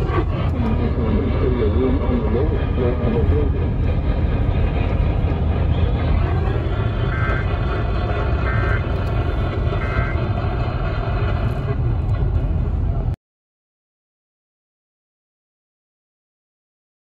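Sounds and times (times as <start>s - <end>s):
low rumble and hiss: 0.0s - 13.2s.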